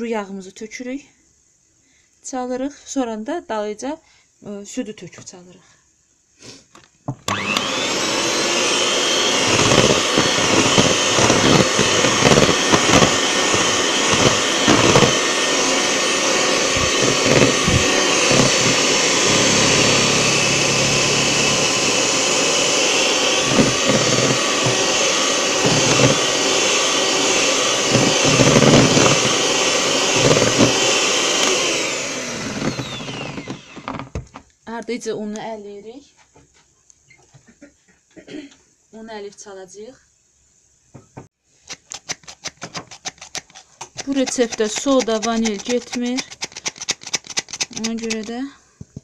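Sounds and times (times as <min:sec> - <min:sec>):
electric hand mixer whining: 0:07.3 - 0:34.2, 0:43.9 - 0:48.3
beaters knocking bowl: 0:43.9 - 0:46.4.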